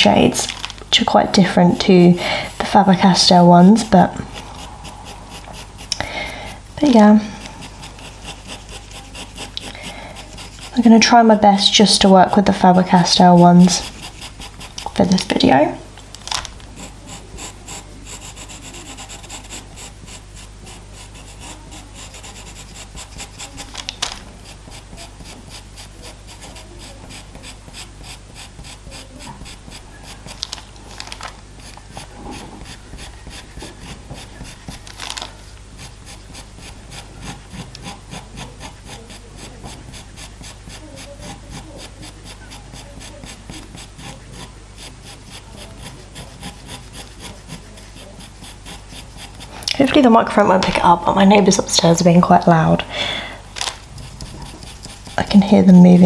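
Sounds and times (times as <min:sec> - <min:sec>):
steady low hum: 0:00.0 - 0:56.0
pencil scratching on paper: 0:00.1 - 0:52.4, 0:53.5 - 0:56.0
pencil tip ticks: 0:07.4 - 0:10.8, 0:12.3 - 0:15.3, 0:16.8 - 0:35.2, 0:35.8 - 0:49.8, 0:53.6 - 0:55.3.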